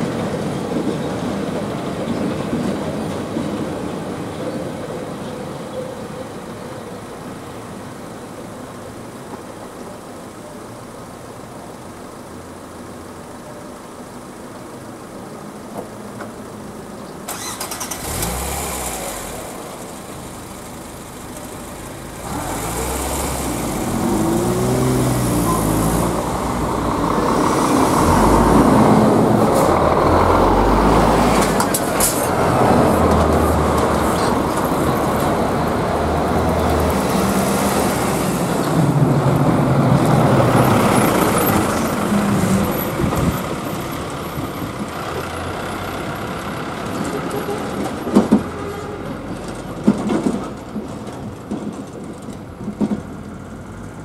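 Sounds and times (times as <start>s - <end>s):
car engines pulling away: 16.4s - 54.0s
lorry passing: 17.3s - 47.3s.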